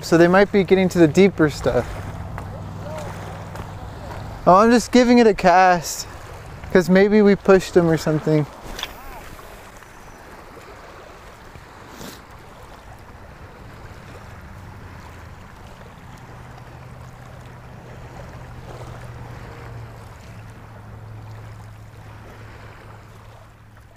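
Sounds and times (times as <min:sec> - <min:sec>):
low engine hum: 0:00.0 - 0:23.9
water noise: 0:00.0 - 0:23.9
wind: 0:00.0 - 0:23.9
sharp click: 0:08.7 - 0:09.0.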